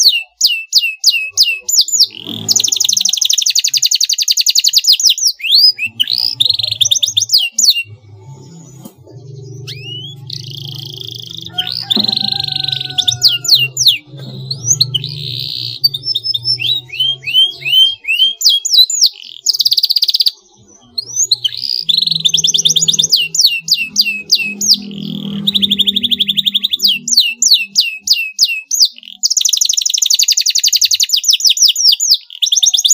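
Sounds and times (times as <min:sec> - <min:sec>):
canary singing: 0:00.0 - 0:32.9.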